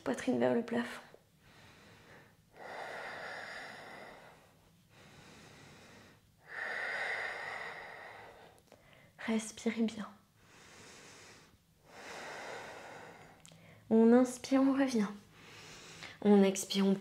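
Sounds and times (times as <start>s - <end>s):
woman breathing deeply: 1.2s - 9.2s, 10.3s - 13.9s, 15.3s - 16.2s.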